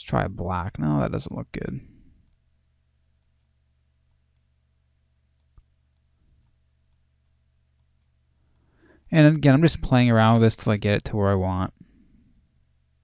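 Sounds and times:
faint low hum: 0:00.0 - 0:13.0
computer mouse click: 0:05.4 - 0:09.1.

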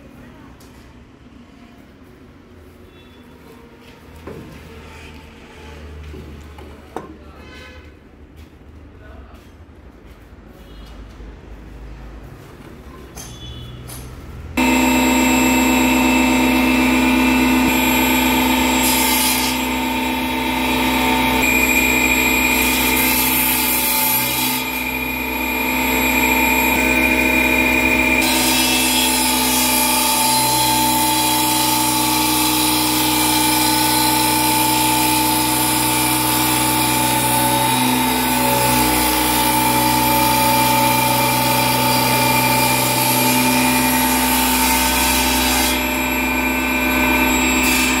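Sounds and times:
power tool working wood: 0:14.6 - 0:48.0.

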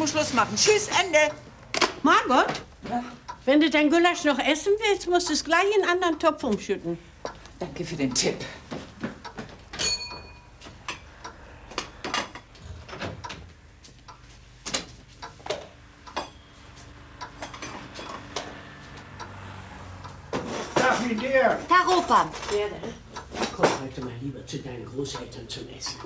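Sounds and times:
footsteps: 0:08.6 - 0:10.9
wooden door opening and shutting: 0:12.6 - 0:13.5.

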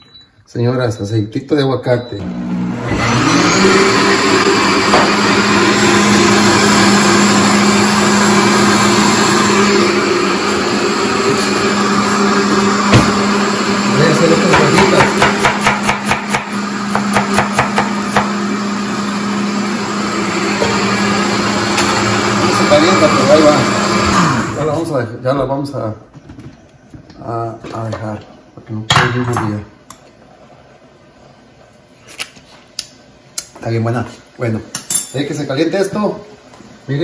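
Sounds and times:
blender running: 0:02.2 - 0:25.0.

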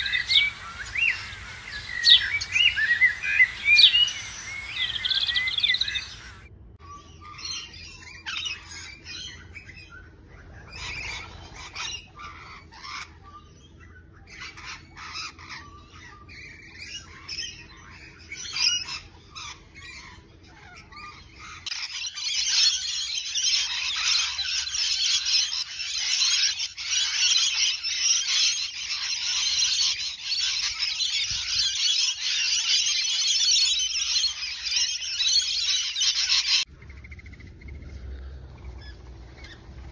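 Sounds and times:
parrots screeching and chattering: 0:00.0 - 0:39.9.

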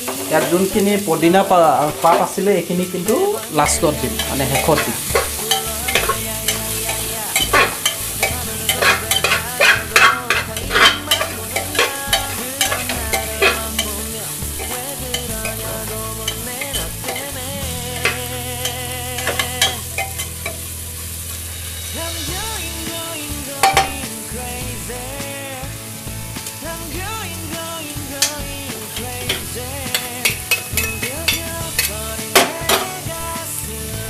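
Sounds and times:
vegetables sizzling in oil: 0:00.0 - 0:34.0
spoon stirring and scraping pot: 0:03.9 - 0:20.7, 0:29.2 - 0:33.0.

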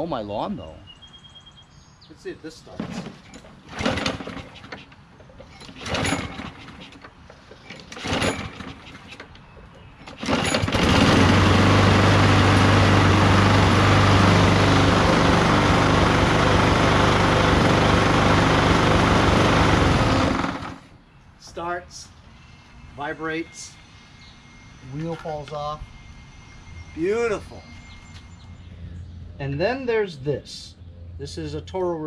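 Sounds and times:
lawn mower engine running: 0:02.7 - 0:09.3, 0:10.0 - 0:20.9
starter cord pulls: 0:02.8 - 0:12.8.

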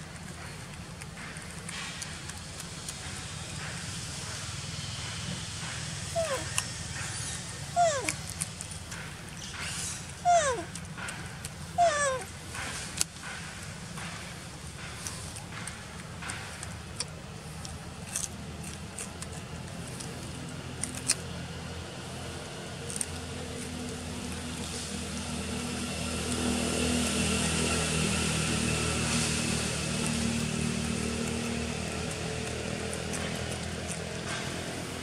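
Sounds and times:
vehicle engine running: 0:00.0 - 0:35.0.

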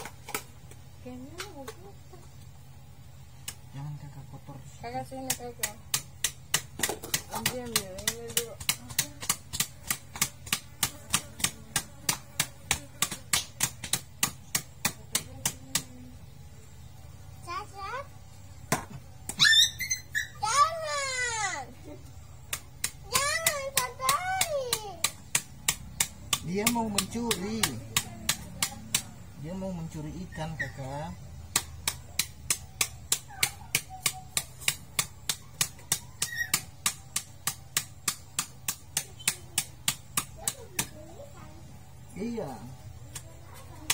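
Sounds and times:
knife chopping on wooden board: 0:05.2 - 0:16.0, 0:22.5 - 0:29.2.

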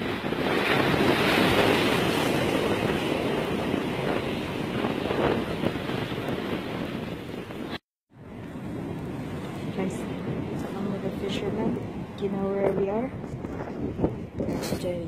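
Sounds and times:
waves breaking against rocks: 0:00.0 - 0:07.8
wind on microphone: 0:00.0 - 0:15.0.

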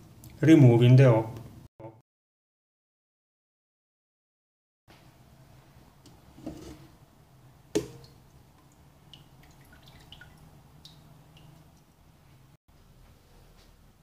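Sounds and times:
pot shuffling in sink: 0:06.2 - 0:07.0
water dripping: 0:07.7 - 0:12.1.

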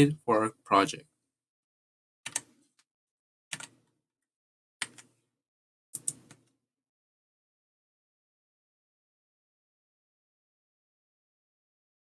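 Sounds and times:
sharp computer clicks: 0:06.0 - 0:06.4.

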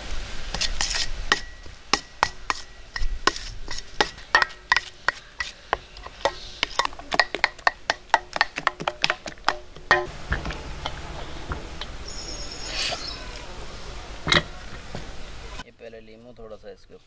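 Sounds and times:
metal spoon scraping steel bowl: 0:00.6 - 0:10.1.

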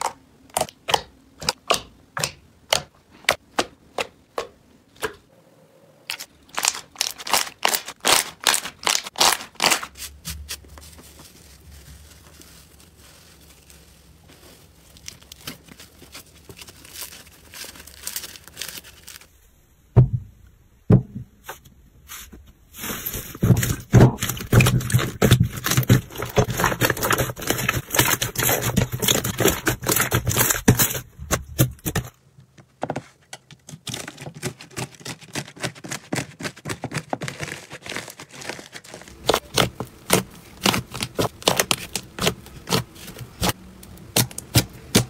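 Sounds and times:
slime crackling: 0:06.1 - 0:19.3, 0:22.8 - 0:32.1, 0:37.3 - 0:45.0
dull thuds: 0:19.9 - 0:21.4.

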